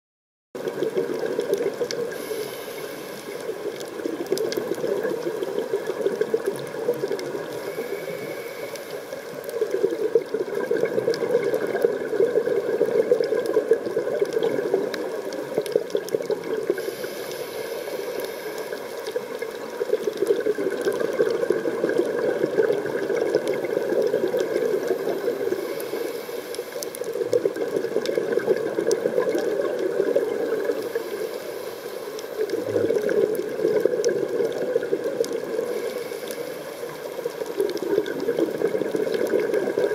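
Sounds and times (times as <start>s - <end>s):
faint clicks: 0.6s - 39.9s
underwater regulator breathing: 2.1s - 3.9s, 7.4s - 9.5s, 16.7s - 19.3s, 24.5s - 27.2s, 35.6s - 38.3s.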